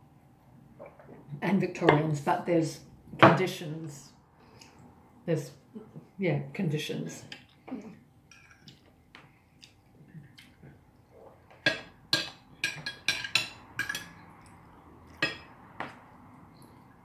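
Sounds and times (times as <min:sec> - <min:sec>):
cutlery clinking on plates: 0:08.3 - 0:08.8, 0:11.6 - 0:14.5, 0:15.1 - 0:16.0.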